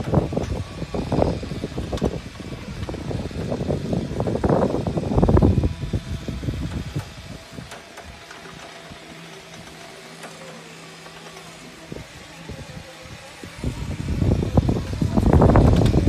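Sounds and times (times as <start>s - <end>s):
machinery rumbling: 0.0s - 16.0s
motor hum: 0.0s - 16.0s.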